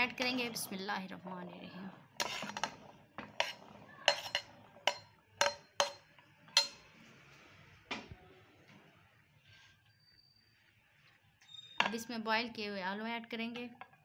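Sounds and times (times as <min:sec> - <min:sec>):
metal spoon clinking on glass bowl: 0:03.4 - 0:06.9.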